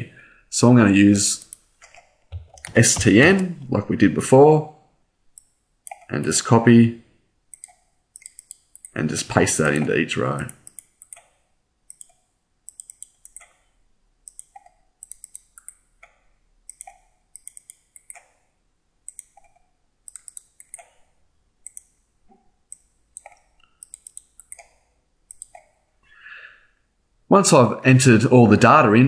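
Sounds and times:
computer mouse buttons clicking: 1.4s - 3.2s, 7.5s - 9.0s, 9.8s - 18.4s, 19.1s - 21.0s, 21.6s - 22.0s, 22.7s - 25.8s.

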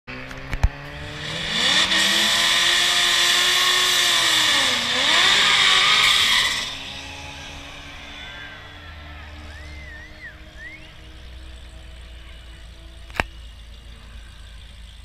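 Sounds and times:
car engines revving: 0.1s - 15.0s
tires spinning hiss: 1.0s - 8.6s.

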